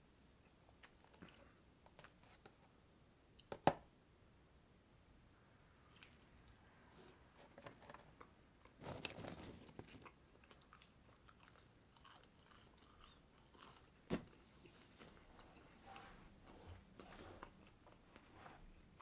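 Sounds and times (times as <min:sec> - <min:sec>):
burger being chewed: 0:07.6 - 0:19.0.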